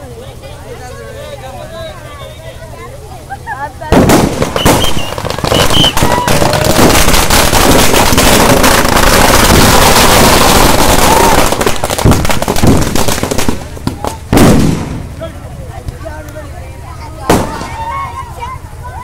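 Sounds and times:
firecrackers cracking: 3.3 - 16.4, 17.1 - 18.8
loud bang: 3.9 - 15.2, 17.2 - 17.9.

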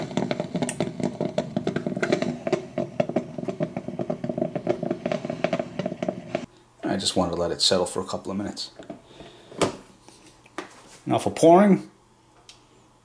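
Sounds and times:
coffeemaker gurgling and sputtering: 0.0 - 6.5.

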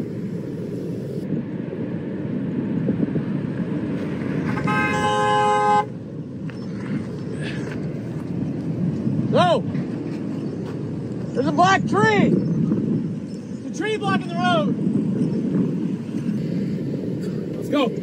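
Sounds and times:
car horn: 4.5 - 6.0.

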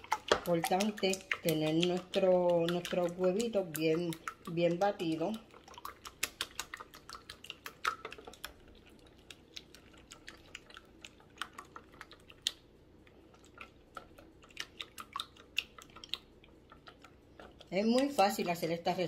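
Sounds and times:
wire whisk clicking against bowl: 0.0 - 5.3.

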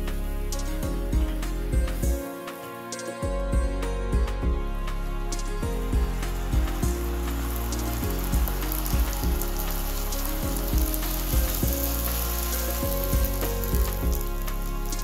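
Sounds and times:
background music with steady beat: 0.0 - 15.0
sugar syrup sizzling in a pan: 5.4 - 15.0.

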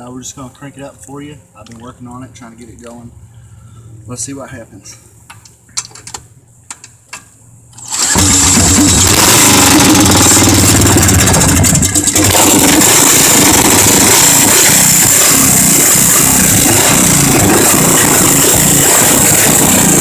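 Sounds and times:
cordless drill spinning engine: 7.8 - 20.0
small engine running loudly: 7.8 - 20.0.

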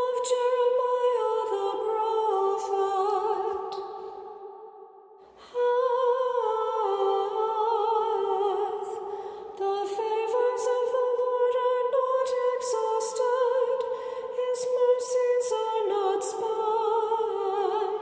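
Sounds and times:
person singing chant: 5.5 - 18.0.

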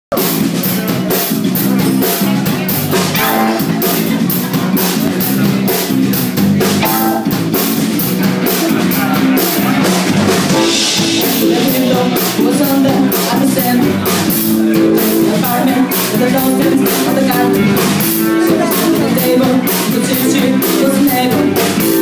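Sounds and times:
amplified electric guitars: 0.1 - 22.0
drum kit fast beat: 0.1 - 22.0.

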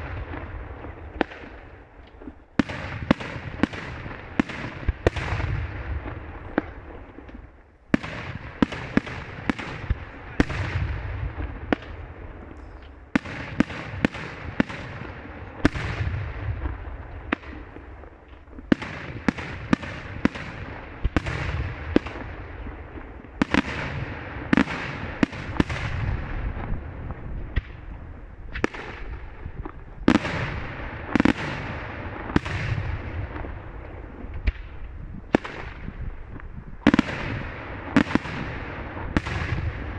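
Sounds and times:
fireworks bursting with echo: 0.0 - 39.9.

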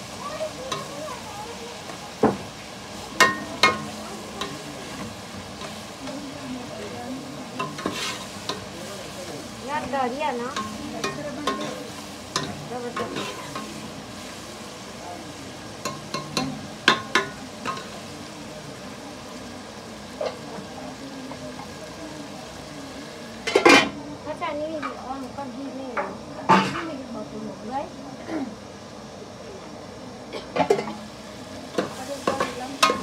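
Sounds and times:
pot sizzling: 0.0 - 33.0
metal ladle scraping and clinking pot: 7.6 - 8.6.

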